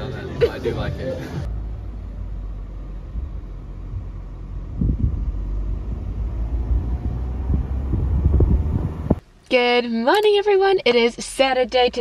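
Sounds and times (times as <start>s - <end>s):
car rumble: 0.0s - 9.3s
wind buffeting microphone: 3.1s - 9.2s.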